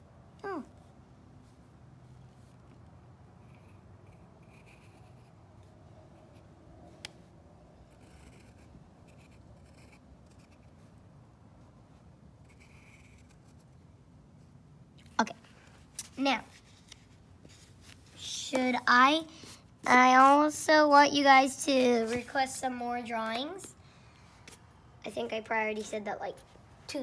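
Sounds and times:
pencil scratching on paper: 0:03.4 - 0:05.4, 0:07.8 - 0:11.0, 0:12.4 - 0:13.8.

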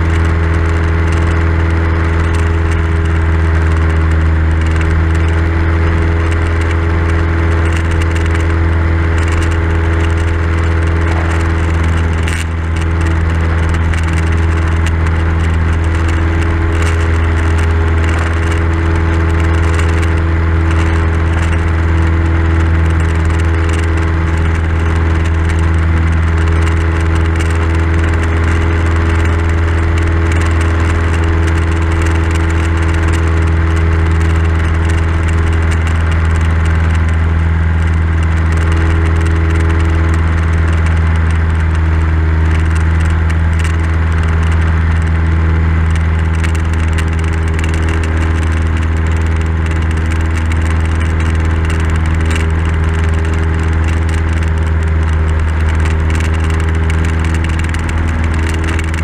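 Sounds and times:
airplane engine and propeller drone: 0:00.0 - 0:59.0.

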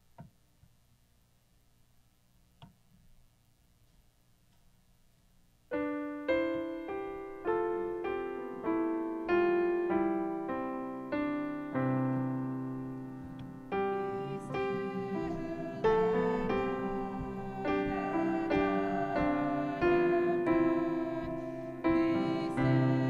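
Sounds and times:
slow piano notes: 0:05.7 - 0:23.0.

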